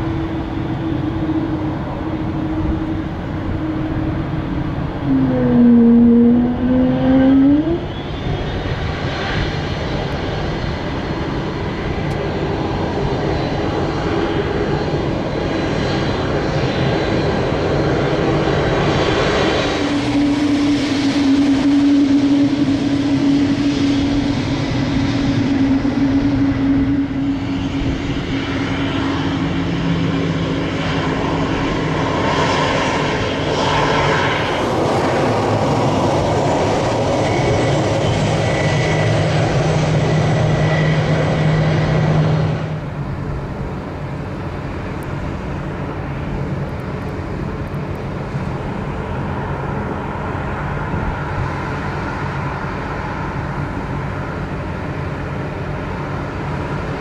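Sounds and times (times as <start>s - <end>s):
jet engines running: 0.0s - 57.0s
landing airliner jet noise: 0.0s - 57.0s
short tone dipping and rising: 5.0s - 8.0s.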